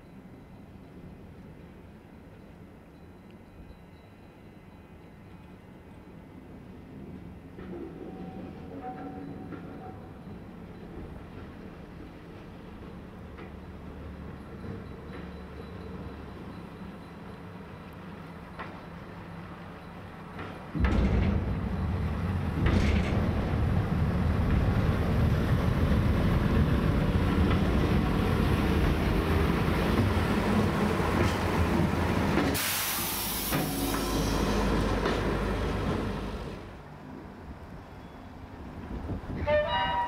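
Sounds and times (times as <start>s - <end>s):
railbus rumbling past: 0.0s - 40.0s
loud hiss: 32.5s - 34.6s.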